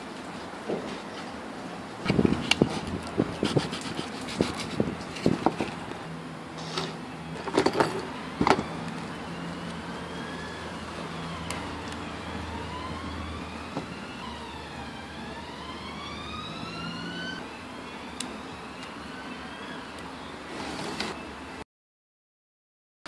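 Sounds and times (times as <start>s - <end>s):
siren wailing: 8.1s - 20.5s.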